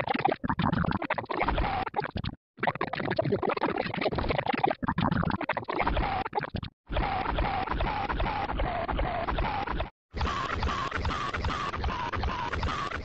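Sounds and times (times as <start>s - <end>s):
fragments of a voice: 2.7s - 13.0s.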